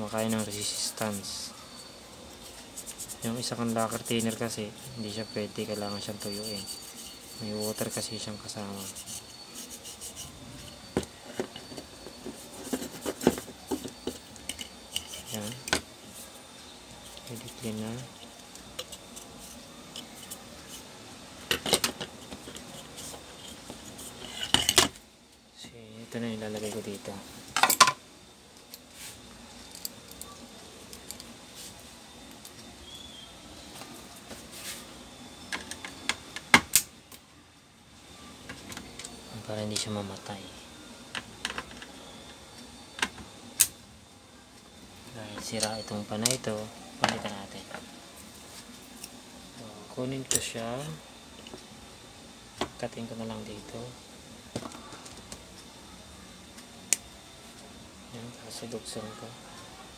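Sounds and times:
gloved hands rubbing plastic fan: 0:00.0 - 0:10.9.

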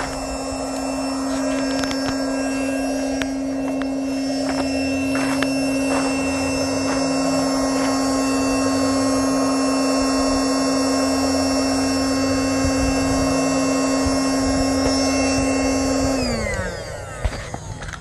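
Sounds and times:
electric air pump running: 0:00.0 - 0:18.0.

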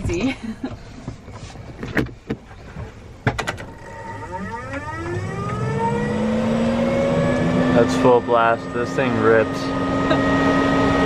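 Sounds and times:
fan motor whine: 0:03.4 - 0:11.0.

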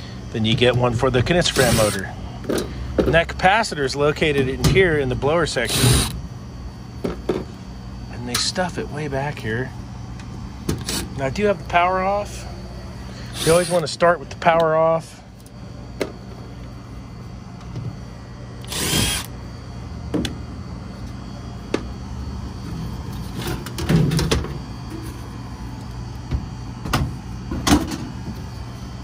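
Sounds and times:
power driver burst: 0:01.5 - 0:02.0, 0:18.6 - 0:19.3.

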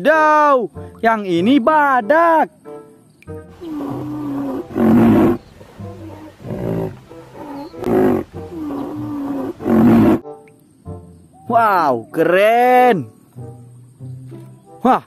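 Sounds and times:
animal growling and roaring: 0:03.6 - 0:10.2.

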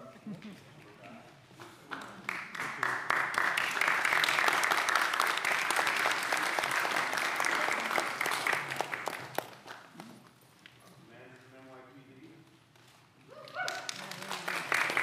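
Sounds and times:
crowd applauding: 0:01.8 - 0:10.1, 0:13.4 - 0:15.0.

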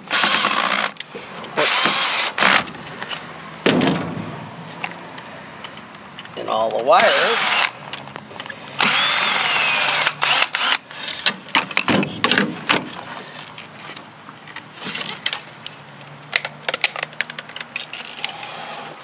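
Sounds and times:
cordless drill whirring: 0:00.0 - 0:01.0, 0:01.6 - 0:02.6, 0:07.0 - 0:07.8, 0:08.8 - 0:10.8
sheet metal clanking and rattling: 0:03.6 - 0:05.0.

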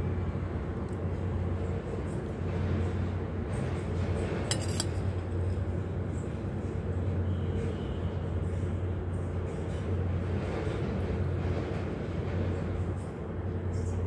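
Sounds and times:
metal spoon clinking on plate: 0:04.5 - 0:05.0.

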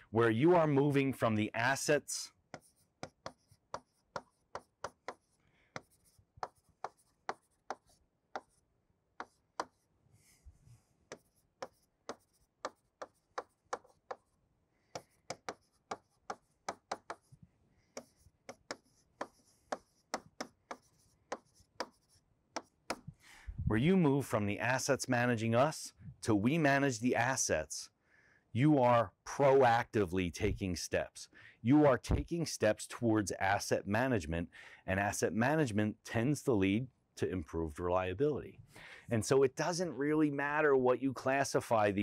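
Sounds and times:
pen writing on board: 0:02.4 - 0:09.9, 0:11.0 - 0:23.1.

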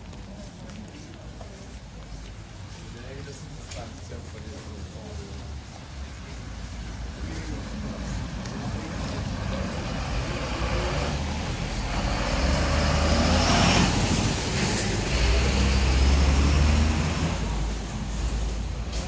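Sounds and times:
bus and truck driving past: 0:05.0 - 0:19.0.

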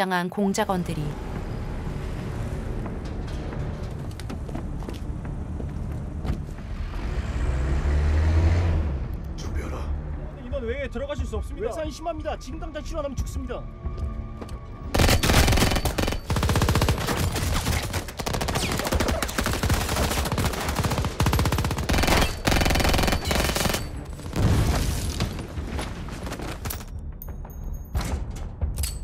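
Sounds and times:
heavy gunfire: 0:15.0 - 0:24.8.

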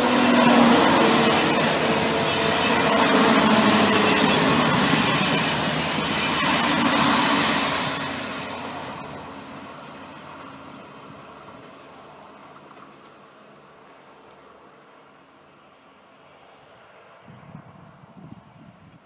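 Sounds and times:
train wheels rushing on rails: 0:00.0 - 0:14.9.

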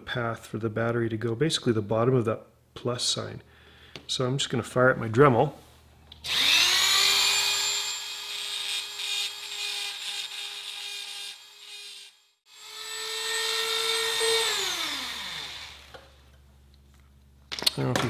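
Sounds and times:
rotary tool grinding metal: 0:06.3 - 0:16.0.

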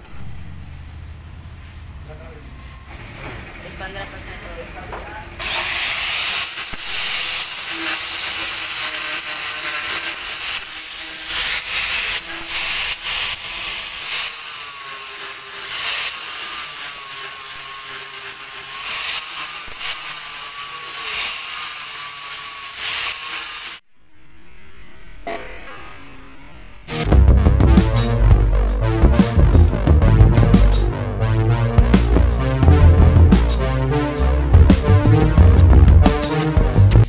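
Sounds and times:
angle grinder grinding metal: 0:05.4 - 0:23.8.

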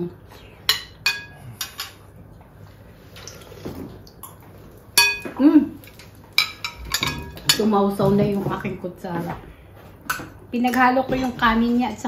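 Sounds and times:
spoons clinking against ceramic bowls: 0:00.7 - 0:02.0, 0:05.0 - 0:07.8.

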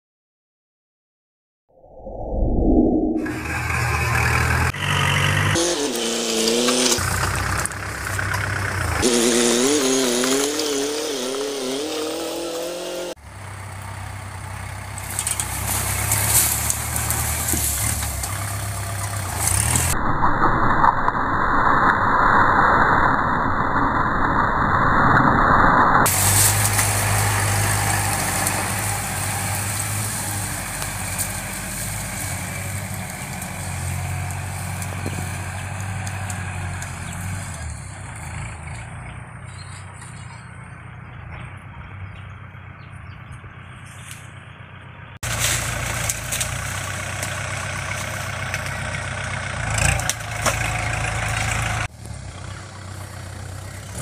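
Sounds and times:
wavering tone: 0:01.7 - 0:04.0
tractor diesel engine running: 0:03.2 - 0:20.0, 0:26.1 - 0:54.0.

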